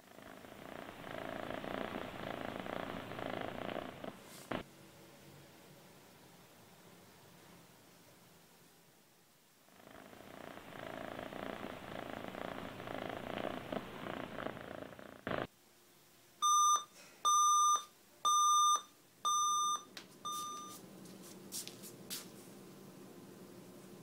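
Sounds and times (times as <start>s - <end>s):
cat purring: 0.0s - 4.6s, 9.6s - 15.5s
digital alarm clock beeping: 16.4s - 20.8s.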